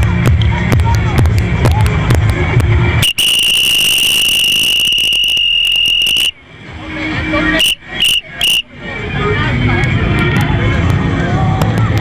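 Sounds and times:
high-pitched whistle blasts: 3.0s - 6.4s, 7.6s - 8.7s.

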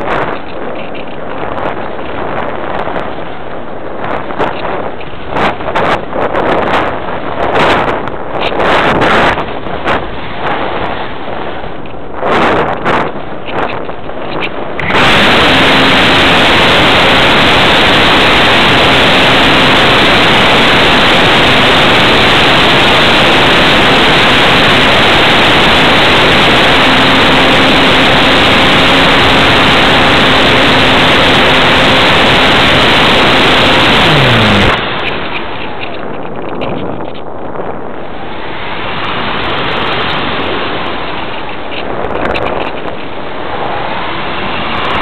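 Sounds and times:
wind and propeller rush: 0.0s - 45.0s
electric motor hum: 14.8s - 36.2s.

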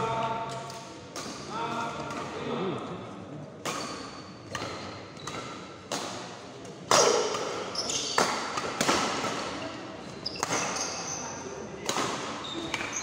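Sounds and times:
rackets hitting shuttlecock: 3.6s - 9.7s, 10.3s - 11.2s, 11.8s - 13.0s.

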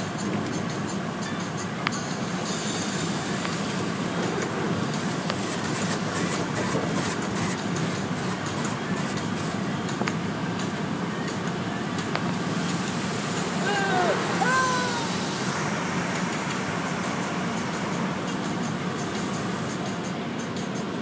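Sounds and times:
car wash water spray and machinery: 0.0s - 21.0s
spray hissing on glass: 0.2s - 21.0s.

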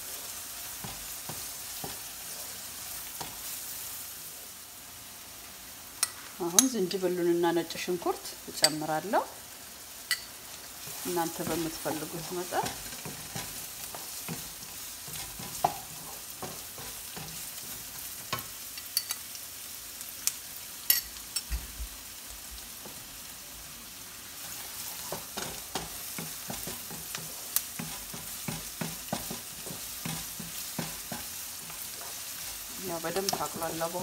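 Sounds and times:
onion sizzling in hot oil: 0.0s - 34.0s
wooden spatula scraping pan: 10.8s - 18.5s, 24.4s - 34.0s.

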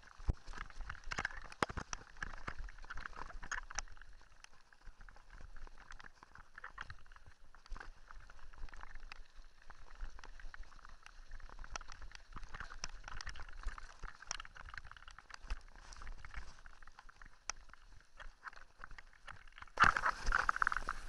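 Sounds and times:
bike tyres crunching over gravel: 19.8s - 21.0s.

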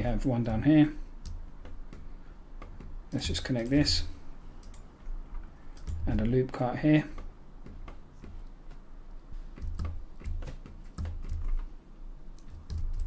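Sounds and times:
keyboard keystrokes: 5.8s - 6.3s, 9.5s - 11.7s, 12.4s - 13.0s.

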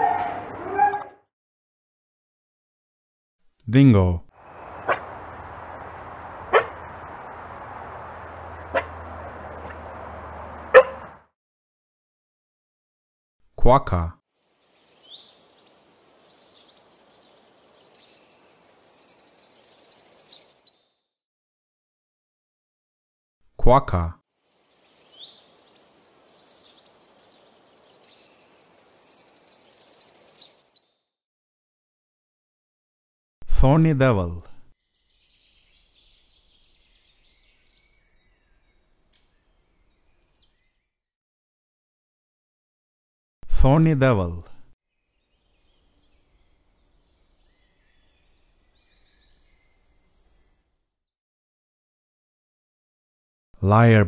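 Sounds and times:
faint outdoor hiss: 3.7s - 11.1s, 14.4s - 20.9s, 24.4s - 30.7s, 34.9s - 40.7s, 44.9s - 50.6s
small birds chirping: 4.4s - 11.2s, 14.4s - 21.1s, 24.4s - 31.1s, 34.8s - 40.9s, 44.9s - 51.1s.

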